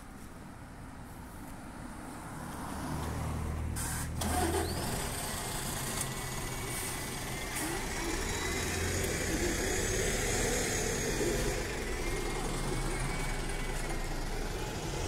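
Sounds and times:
bus engine running: 3.6 - 15.0.

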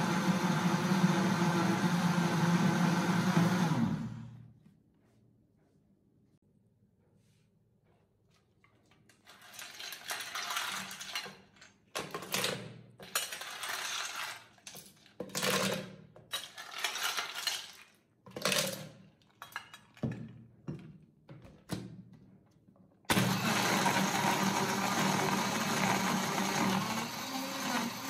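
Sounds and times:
ice cubes clinking: 9.3 - 11.8, 13.0 - 20.2.

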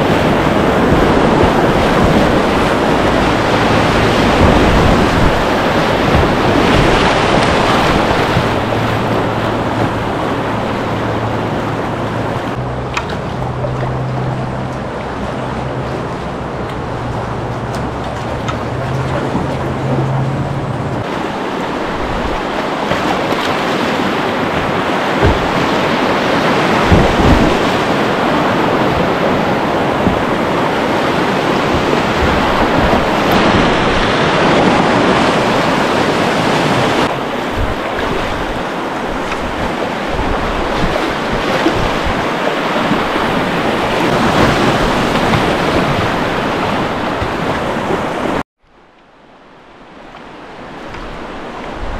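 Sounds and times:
whitewater rapids rushing: 0.0 - 48.4, 49.2 - 51.9.

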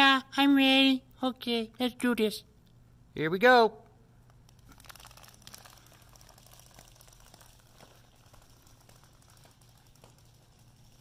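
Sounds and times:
vinyl figures toppling clicking: 4.3 - 11.0.

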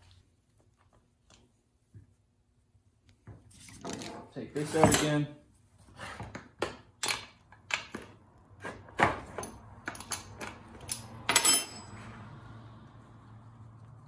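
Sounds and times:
wrench clattering on metal bench: 9.3 - 11.9.

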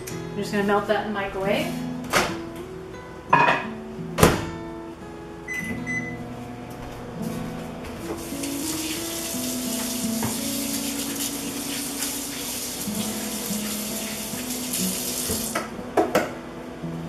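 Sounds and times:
kitchen tap running into sink: 8.2 - 15.7.

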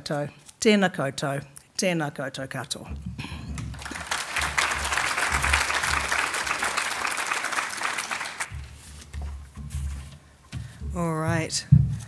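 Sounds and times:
audience applauding: 3.6 - 8.6.

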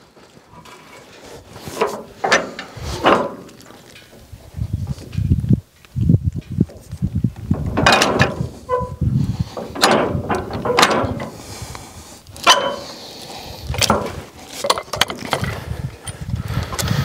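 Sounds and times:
steel clamp clanking: 1.7 - 4.2, 7.5 - 11.4, 12.4 - 13.0
short metallic squeak: 8.6 - 9.0.

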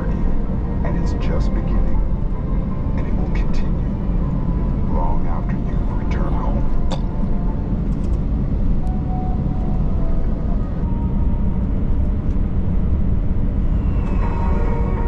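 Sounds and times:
jet cabin low rumble: 0.0 - 15.0.

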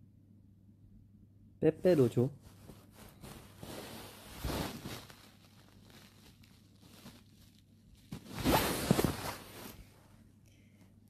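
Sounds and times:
clothing rubbing on microphone: 2.4 - 7.4, 8.0 - 10.0.

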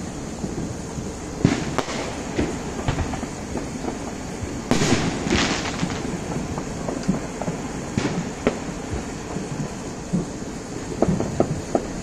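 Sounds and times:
distant fireworks bang: 0.0 - 12.0
fireworks crackling: 0.0 - 12.0
fireworks popping: 0.0 - 12.0
steady low rumble: 0.0 - 12.0.

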